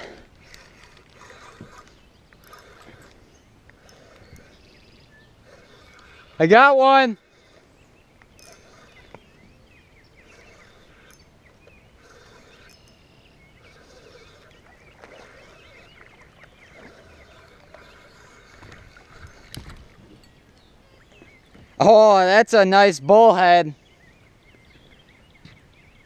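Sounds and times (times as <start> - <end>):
birds chirping and whistling: 0.4 - 21.9, 23.4 - 26.0.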